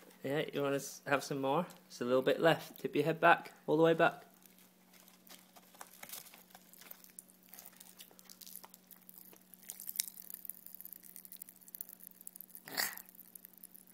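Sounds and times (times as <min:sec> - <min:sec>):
popping candy crackling: 0:04.3 - 0:13.9.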